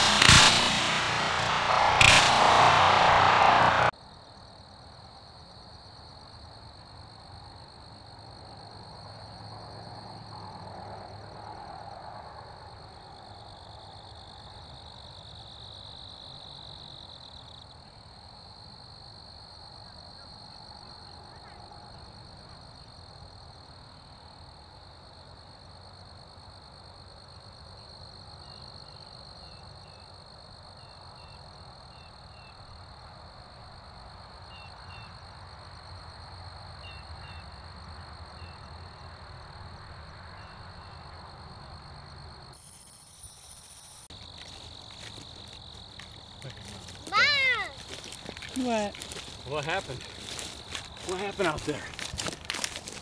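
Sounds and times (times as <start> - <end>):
insects calling: 27.3 - 33.0, 33.8 - 53.0.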